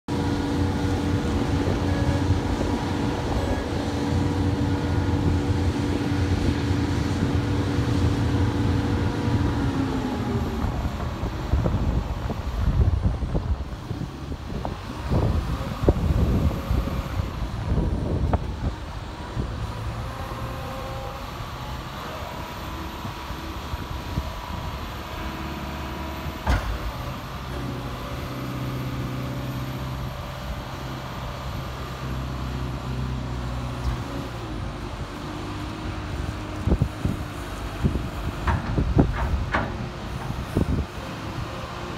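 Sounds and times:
diesel engine running: 0:00.1 - 0:41.9
wind on microphone: 0:00.3 - 0:20.7, 0:34.6 - 0:41.8.

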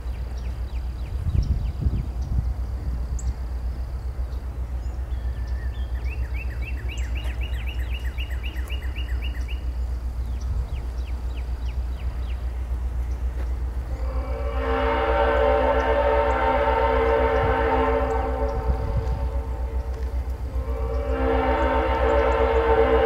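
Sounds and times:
distant locomotive engine rumble: 0:00.0 - 0:23.0
songbirds chirping: 0:00.0 - 0:23.0.

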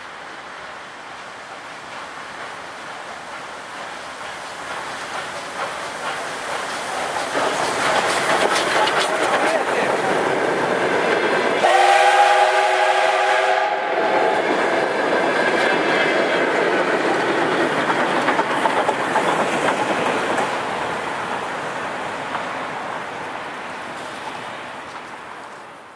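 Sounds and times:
train wheels clicking over rail joints: 0:00.0 - 0:12.9, 0:14.0 - 0:23.2
steam locomotive rolling past: 0:00.0 - 0:25.9
steam whistle: 0:11.6 - 0:14.4.

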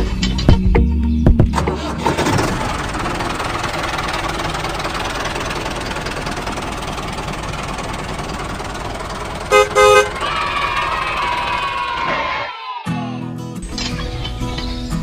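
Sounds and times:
tractor engine running: 0:01.3 - 0:12.3
horn toots: 0:09.4 - 0:10.4.

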